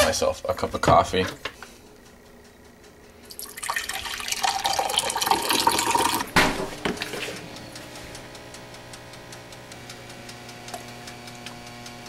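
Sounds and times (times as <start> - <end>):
coffee pouring into a mug: 3.3 - 6.3.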